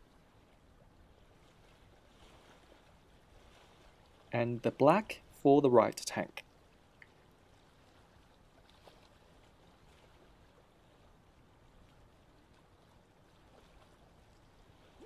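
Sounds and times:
faint background hiss: 0:00.0 - 0:09.0
faint tick: 0:07.0 - 0:07.2.

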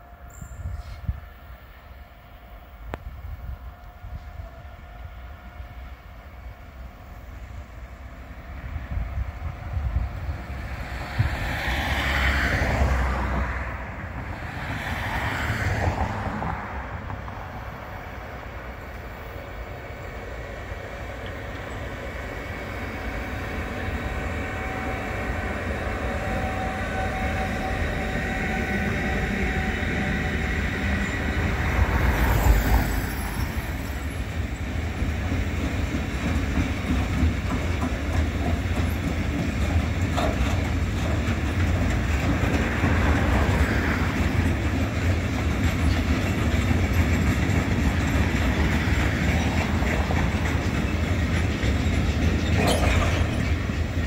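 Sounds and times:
electric locomotive whine: 0:00.0 - 0:54.0
train wheels clattering on rails: 0:08.9 - 0:54.0.

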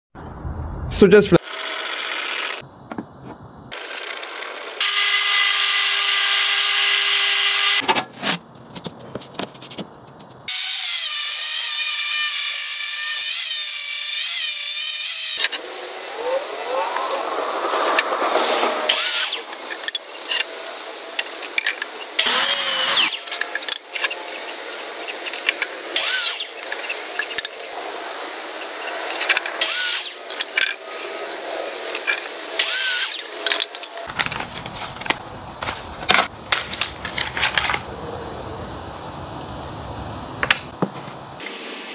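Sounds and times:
power tool motor whine: 0:01.4 - 0:02.6, 0:03.8 - 0:07.8, 0:10.5 - 0:20.5, 0:22.2 - 0:24.4, 0:28.8 - 0:31.0, 0:32.6 - 0:35.2.

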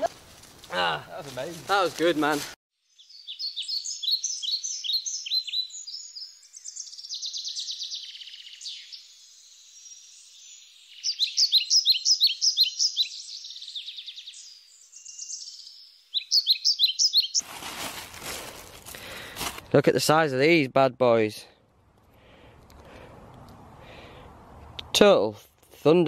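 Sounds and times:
songbirds chirping: 0:00.7 - 0:17.4
bird trill: 0:02.9 - 0:17.4.

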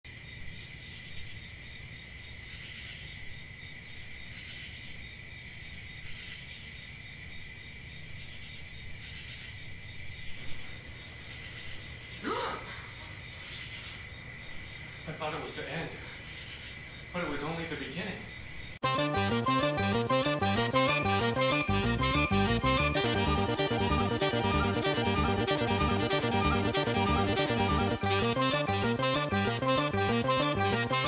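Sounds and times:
crickets chirping: 0:00.1 - 0:18.9.

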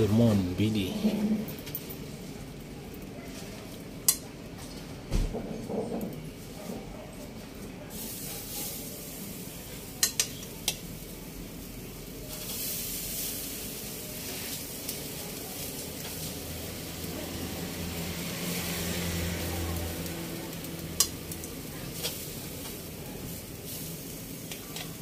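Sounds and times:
fish sizzling on a grill: 0:00.0 - 0:25.0
tongs clicking on wire grate: 0:04.0 - 0:04.3, 0:09.9 - 0:10.9, 0:20.6 - 0:22.8.

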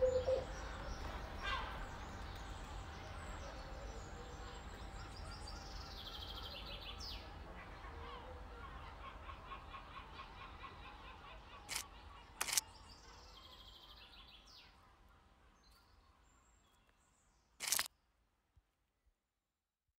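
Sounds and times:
quick repeated chirping: 0:12.4 - 0:12.6, 0:17.6 - 0:17.9.

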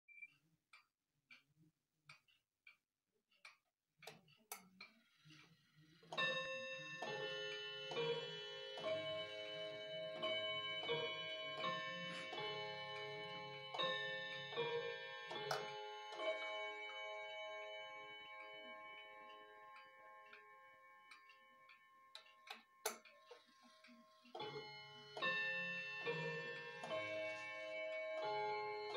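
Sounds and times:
wall clock ticking: 0:00.1 - 0:28.9
clock chime melody: 0:06.1 - 0:28.9.

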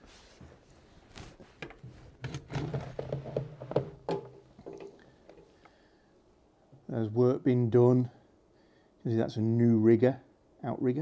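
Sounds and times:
camera handling knocks and taps: 0:01.6 - 0:05.4.

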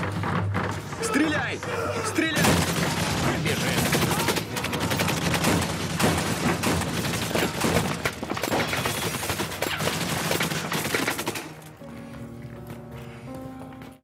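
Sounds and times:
automatic gunfire: 0:02.4 - 0:11.5.

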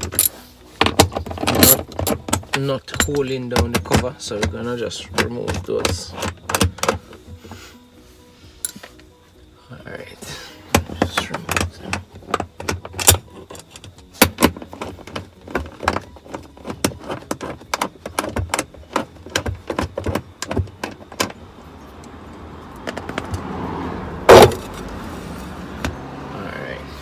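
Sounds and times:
hand tools clicking on metal nuts: 0:00.0 - 0:07.0.

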